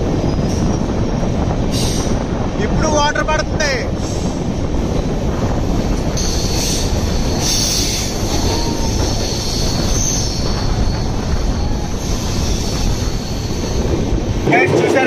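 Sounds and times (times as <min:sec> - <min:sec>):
train wheels rumbling on rail: 0:00.0 - 0:15.0
high wheel squeal: 0:06.2 - 0:13.9.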